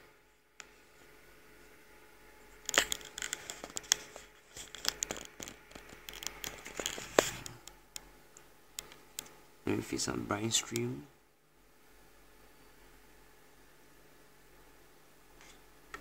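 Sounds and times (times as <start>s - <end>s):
crackling and scratching: 2.4s - 11.0s.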